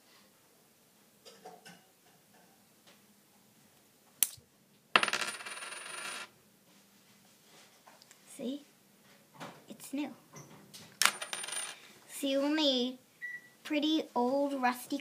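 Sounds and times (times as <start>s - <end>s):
coin rattling on wooden table: 5.0s - 6.3s, 11.0s - 11.8s.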